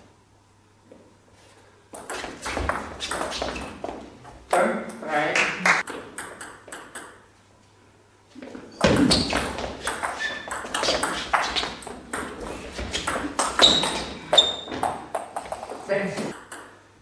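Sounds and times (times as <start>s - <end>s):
table tennis ball clicking: 5.8s - 7.2s, 16.4s - 16.8s.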